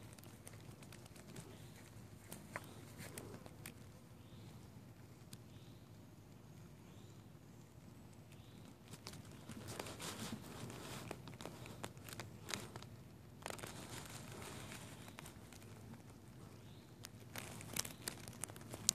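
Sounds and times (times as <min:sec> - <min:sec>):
crinkling handling noises: 0:00.0 - 0:04.0, 0:08.3 - 0:18.9.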